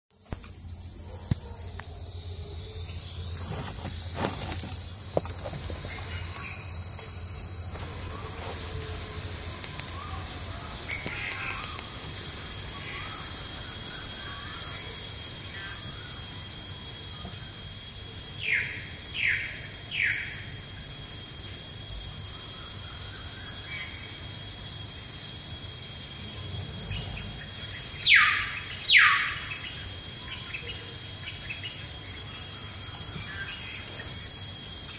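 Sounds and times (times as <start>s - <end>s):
high-pitched insect trill: 0.1s - 34.9s
bird chirps: 28.1s - 29.5s.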